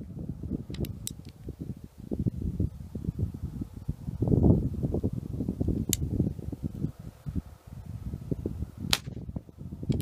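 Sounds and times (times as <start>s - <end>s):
wind buffeting microphone: 0.0s - 10.0s
sharp pistol shot: 8.9s - 9.2s.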